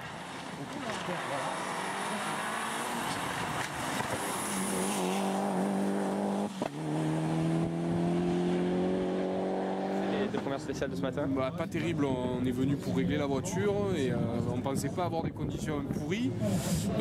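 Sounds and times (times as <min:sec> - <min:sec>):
rally car engine at high revs: 0:00.0 - 0:10.8.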